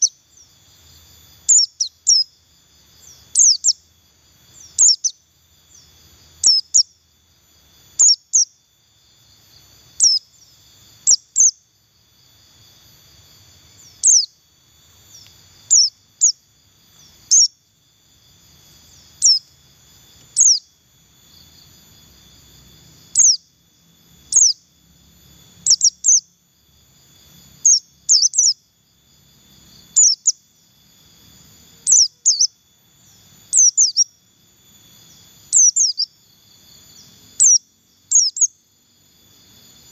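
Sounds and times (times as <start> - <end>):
bird high chirps: 0.0 - 0.5, 1.4 - 2.4, 3.0 - 3.9, 4.5 - 7.0, 7.9 - 8.6, 9.9 - 11.7, 13.8 - 14.4, 15.1 - 17.6, 18.9 - 19.5, 20.2 - 20.8, 23.1 - 23.5, 24.2 - 24.7, 25.6 - 26.3, 27.6 - 28.6, 29.9 - 30.5, 31.8 - 34.2, 35.0 - 36.2, 37.0 - 38.6
faint high hum: 0.0 - 39.9.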